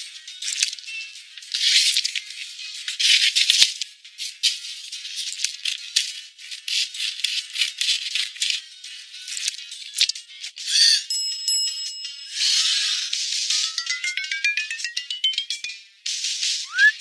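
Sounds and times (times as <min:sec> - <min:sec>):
music with shaken percussion: 0:13.2 - 0:16.6.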